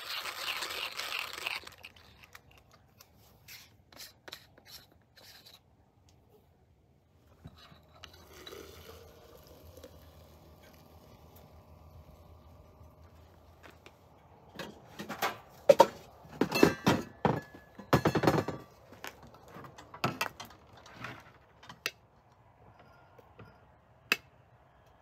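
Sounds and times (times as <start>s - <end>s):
hard objects clattering: 14.6s - 21.8s.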